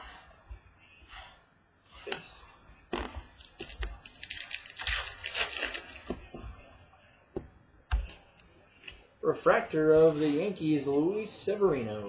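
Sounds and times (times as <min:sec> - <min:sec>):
crinkly rustling: 0:03.0 - 0:06.4.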